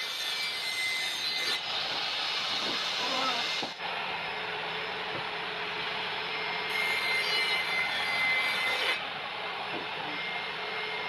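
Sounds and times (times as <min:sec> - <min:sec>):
saw blade cutting laminate sheet: 0:00.0 - 0:03.8, 0:06.7 - 0:09.0
table saw running: 0:00.0 - 0:11.0.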